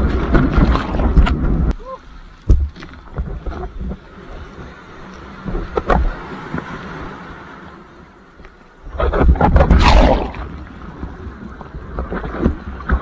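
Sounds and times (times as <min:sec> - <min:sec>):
sea water splashing: 0:00.0 - 0:01.7, 0:08.8 - 0:13.0.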